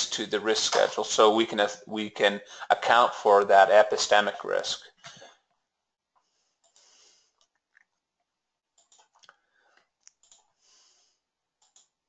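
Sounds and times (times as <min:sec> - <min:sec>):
faint breath: 0:06.2 - 0:07.4, 0:10.6 - 0:11.2
faint mouse clicks: 0:08.8 - 0:10.5, 0:11.6 - 0:12.0.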